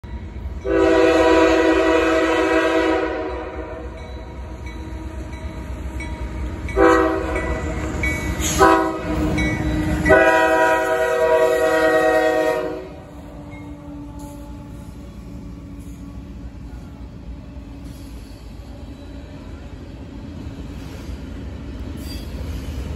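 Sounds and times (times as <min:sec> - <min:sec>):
low rumble of diesel train: 0:00.0 - 0:22.9
train air horn blasts: 0:00.6 - 0:04.0, 0:06.8 - 0:07.4, 0:08.4 - 0:09.2, 0:10.0 - 0:15.2.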